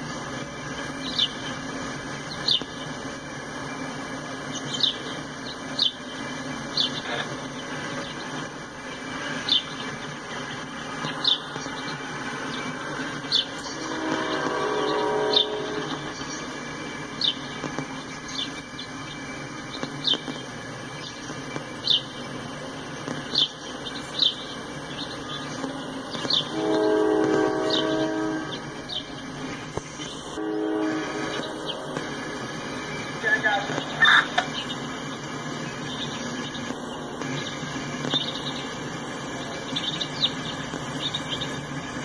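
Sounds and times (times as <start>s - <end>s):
high wheel chirps: 0.0s - 42.0s
train wheels rumbling on rails: 0.0s - 42.0s
train horn: 13.7s - 16.3s, 26.5s - 29.1s, 30.1s - 32.6s.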